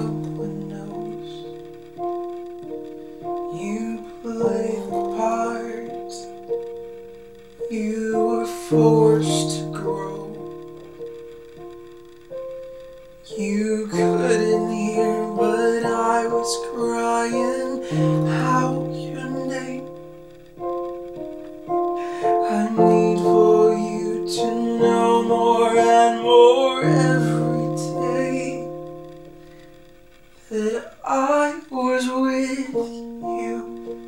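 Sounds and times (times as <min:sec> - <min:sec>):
man singing: 0:00.0 - 0:02.2, 0:03.2 - 0:06.6, 0:07.6 - 0:10.6, 0:13.2 - 0:20.1, 0:21.7 - 0:29.2, 0:30.4 - 0:34.0
digital piano chords: 0:00.0 - 0:34.0.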